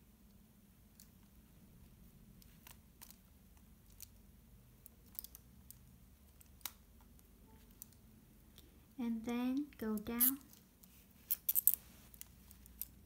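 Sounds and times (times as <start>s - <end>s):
plastic segments clicking: 4.8s - 8.0s.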